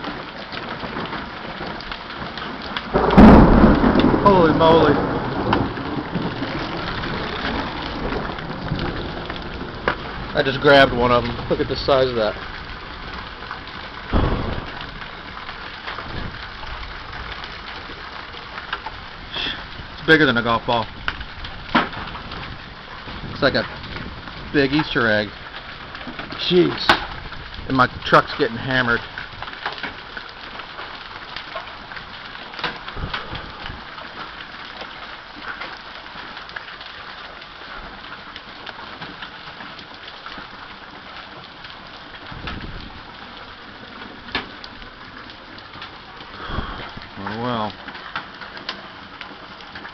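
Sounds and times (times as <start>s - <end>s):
hailstone impacts: 0.0s - 28.4s
hail and rain hissing: 0.0s - 49.9s
low thump: 14.1s - 15.2s.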